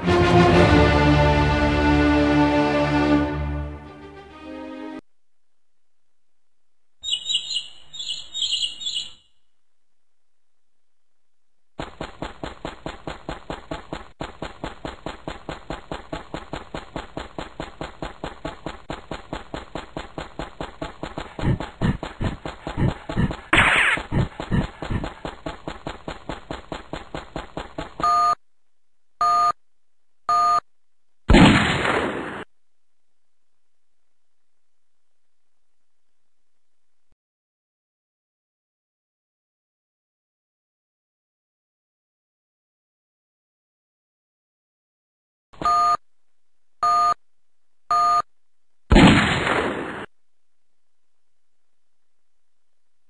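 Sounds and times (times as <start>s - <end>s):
rapid even tapping: 11.8s - 28.0s
short electronic two-tone beeps: 30.3s - 30.6s, 45.6s - 46.0s, 46.8s - 47.2s, 47.9s - 48.2s.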